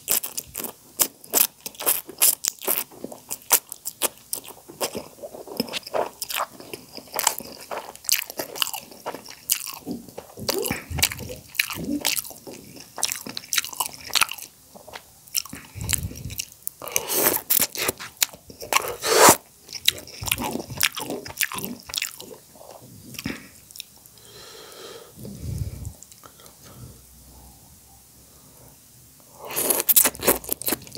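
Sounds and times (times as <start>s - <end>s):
chewing with smacks and clicks: 0.0s - 24.1s, 29.6s - 30.9s
wet slurping of noodles: 18.8s - 19.4s.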